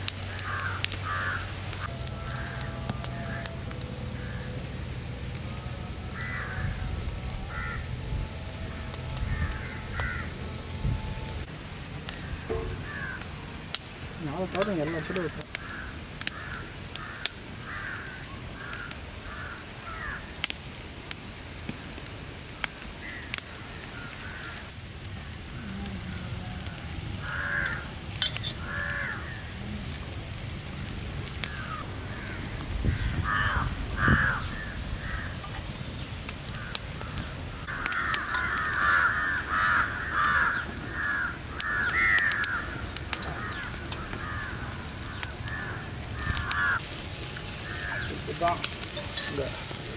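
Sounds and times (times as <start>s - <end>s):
wood fire crackling: 0.0s - 49.9s
crows cawing: 0.1s - 4.7s, 5.6s - 8.0s, 8.6s - 10.8s, 12.1s - 20.5s, 21.6s - 29.6s, 31.2s - 49.9s
low rumble: 0.9s - 14.2s.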